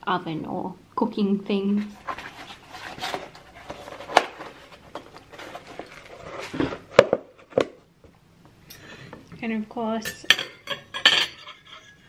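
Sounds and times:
plastic container rustling: 1.9 - 7.6
cutlery clicks and knocks: 10.1 - 12.0.

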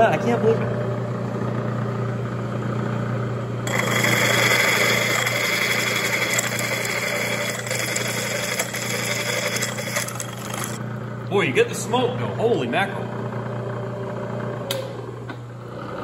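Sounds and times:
drill press humming: 0.7 - 11.3
drill grinding into steel: 3.7 - 10.8.

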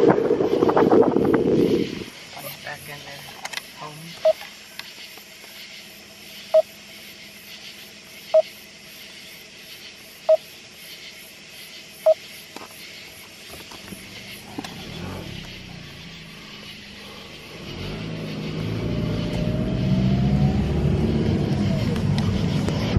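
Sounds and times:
low car rumble: 13.6 - 22.9.

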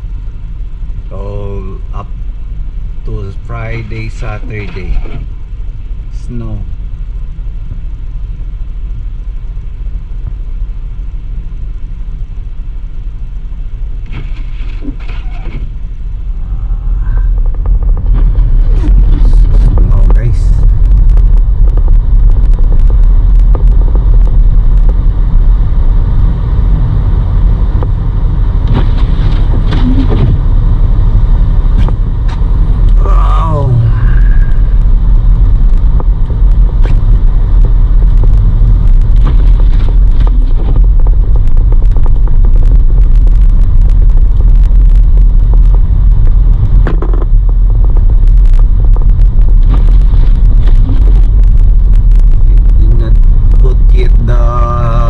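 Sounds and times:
car cabin road and engine rumble: 0.0 - 55.0
knocks and clicks: 17.3 - 20.2.

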